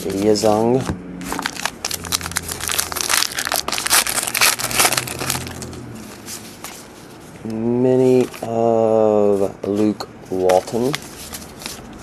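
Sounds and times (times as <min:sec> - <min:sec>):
plastic packaging crinkling: 0:01.2 - 0:07.0.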